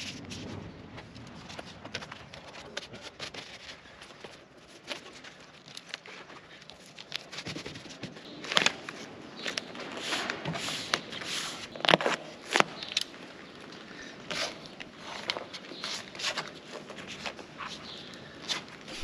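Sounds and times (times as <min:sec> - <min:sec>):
adhesive tape crackling: 0:01.5 - 0:07.5.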